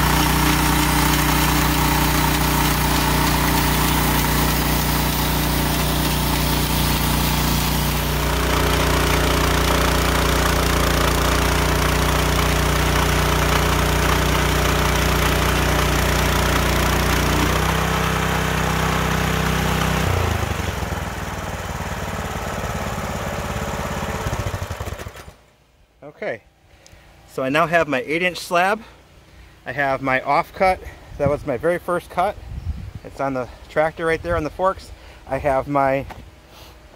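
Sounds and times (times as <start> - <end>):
band blade cutting log: 0.0 - 18.2
sawmill engine running under load: 0.0 - 25.3.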